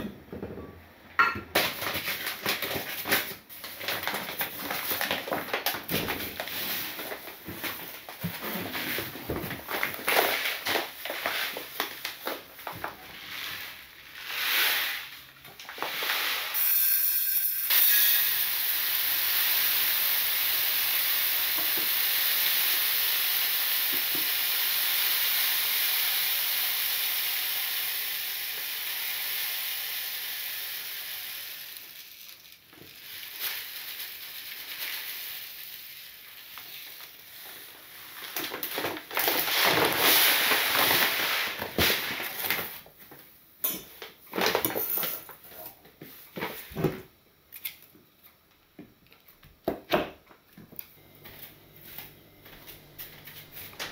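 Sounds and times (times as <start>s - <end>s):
paper bag rustling: 1.6s - 14.2s, 32.9s - 42.9s
rice pouring into glass jar: 13.2s - 42.6s.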